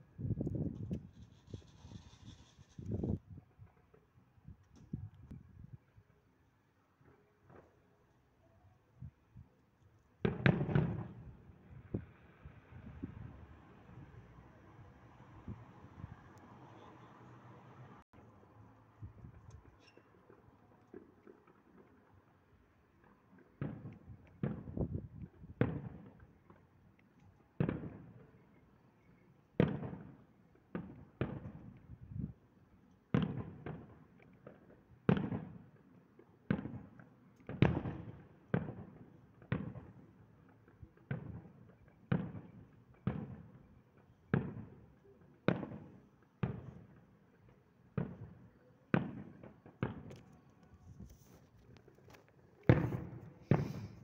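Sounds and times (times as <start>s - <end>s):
distant fireworks bangs: 0.7s - 4.1s, 10.2s - 16.8s, 22.8s - 26.8s, 27.5s - 28.6s, 29.6s - 31.8s, 33.1s - 54.0s.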